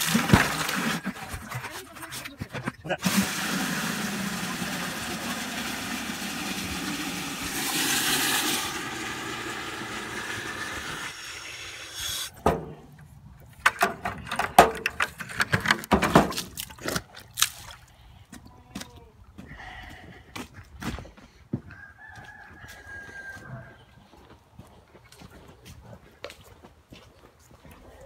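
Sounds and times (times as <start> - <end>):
water running into plastic bucket: 0.0 - 1.9, 2.9 - 12.3
sharp knocks and crunches: 13.5 - 17.8.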